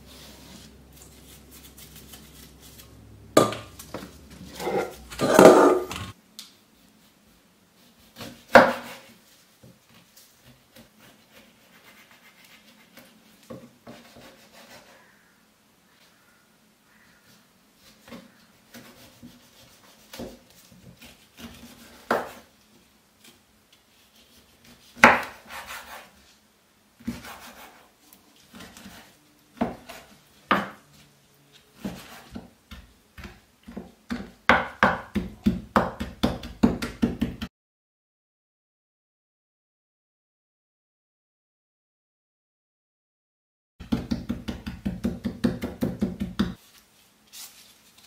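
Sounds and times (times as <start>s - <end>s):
knife cutting on wooden board: 0.3s - 6.1s.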